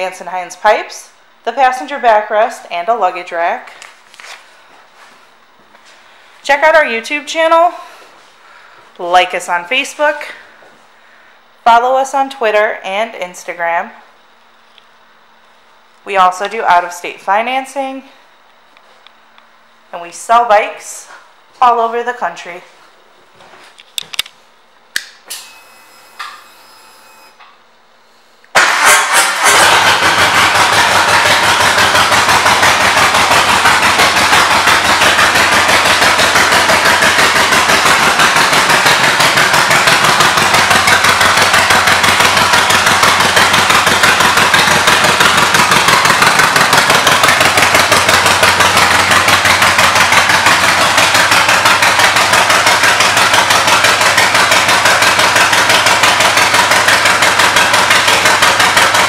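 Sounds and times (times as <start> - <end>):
motorcycle engine idling: 28.6 - 59.0.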